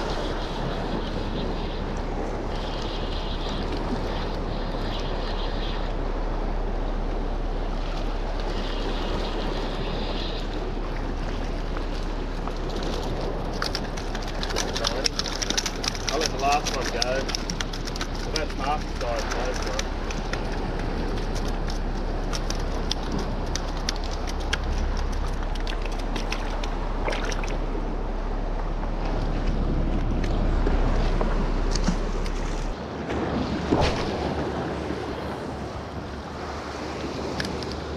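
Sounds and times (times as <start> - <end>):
wind noise on microphone: 0.0 - 37.9
waves washing against rocks: 7.4 - 27.8, 28.9 - 37.9.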